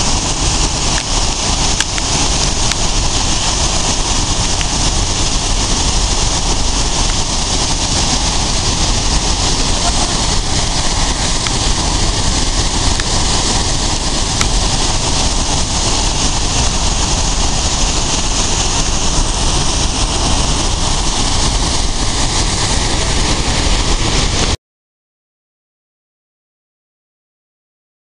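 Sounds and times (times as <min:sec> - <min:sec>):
waterfall rushing: 0:00.0 - 0:24.6.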